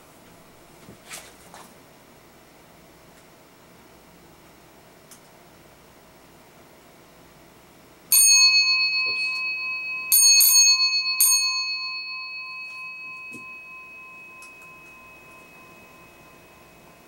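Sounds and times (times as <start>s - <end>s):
fire alarm bell strikes: 8.1s - 17.0s.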